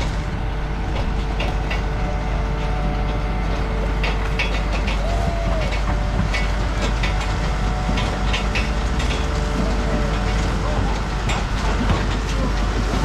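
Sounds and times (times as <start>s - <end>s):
harvesting machine rumbling: 0.0s - 13.0s.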